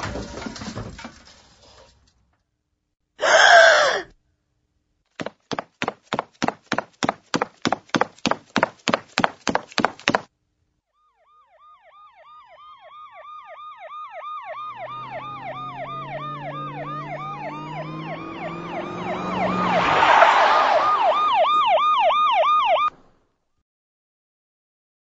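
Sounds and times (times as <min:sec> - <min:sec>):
siren slow wail: 0:10.9 - 0:22.9
siren fast yelp: 0:11.0 - 0:22.9.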